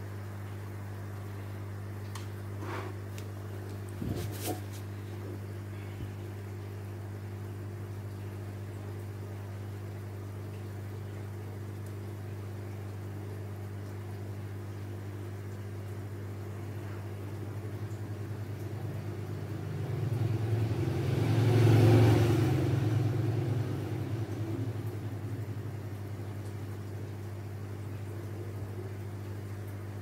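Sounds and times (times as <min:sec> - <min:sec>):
low electrical hum: 0:00.0 - 0:30.0
vehicle passing by: 0:19.8 - 0:24.9.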